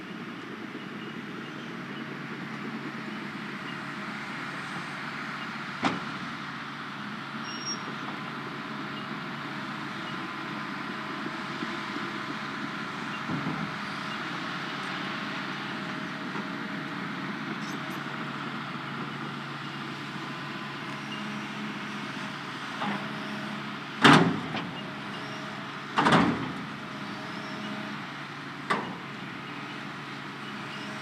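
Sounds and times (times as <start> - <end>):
excavator diesel engine running: 0.0 - 31.0.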